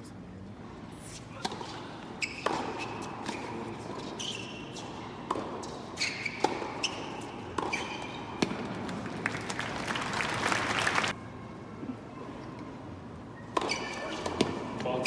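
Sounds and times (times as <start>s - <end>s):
shoes squeaking on court: 0.9s - 9.0s, 13.4s - 15.0s
ball bouncing on hard court: 1.4s - 8.9s, 13.5s - 14.6s
tennis ball struck by rackets: 1.4s - 9.0s, 13.5s - 14.8s
crowd applause: 8.9s - 11.1s.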